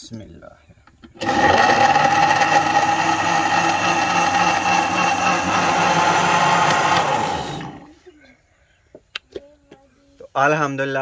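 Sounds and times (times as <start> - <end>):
electric blender whirring: 1.2 - 7.9.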